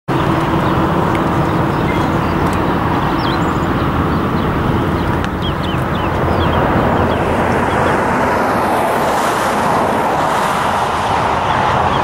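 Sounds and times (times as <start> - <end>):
high bird chirps: 0.1 - 7.9.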